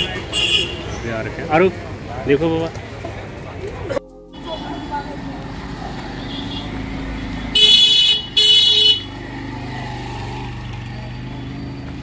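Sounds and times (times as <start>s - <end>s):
vehicle horn honking: 0.0s - 0.9s, 6.1s - 9.2s
street traffic noise: 0.0s - 12.0s.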